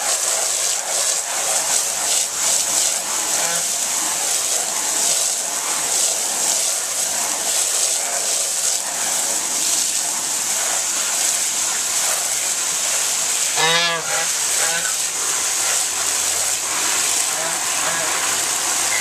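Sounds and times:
hose spraying water on concrete: 0.0 - 19.0
goose call: 13.6 - 15.0, 17.4 - 18.2.

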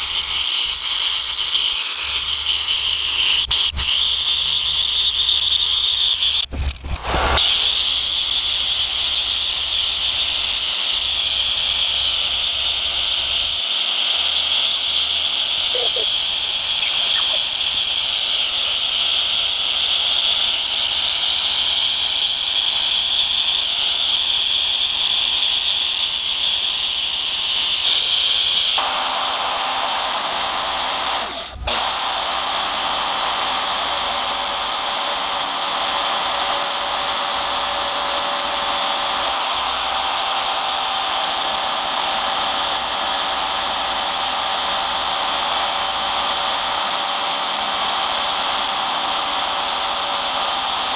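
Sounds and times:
bandsaw cutting metal: 0.0 - 50.9
gas torch hissing: 0.0 - 50.9.

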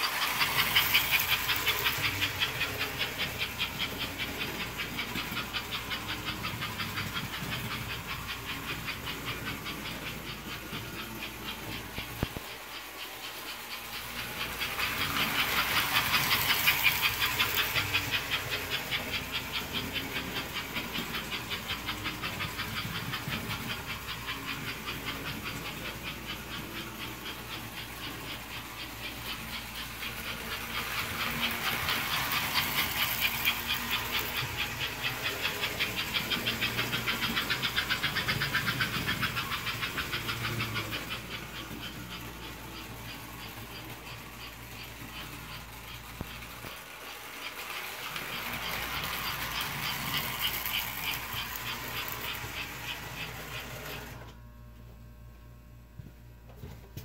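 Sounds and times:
toy train chuffing: 0.0 - 54.4
motor and wheels whirring: 0.0 - 57.0.

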